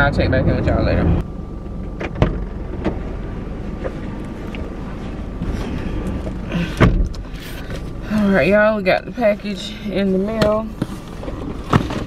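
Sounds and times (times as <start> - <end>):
car engine rumbling: 0.0 - 12.0
loud thump: 2.0 - 3.0, 6.8 - 7.2.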